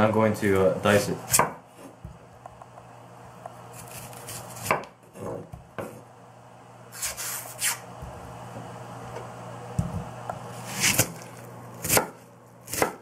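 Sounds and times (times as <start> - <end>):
knife slicing onion: 1.2 - 2.6, 3.4 - 6.0, 6.9 - 8.2, 9.8 - 13.0.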